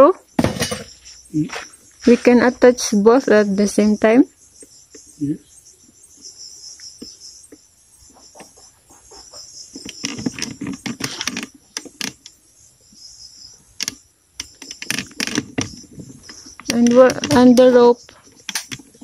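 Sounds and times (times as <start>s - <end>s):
insects chirping: 0.0s - 19.0s
rustling and sharp clicks: 13.8s - 19.0s.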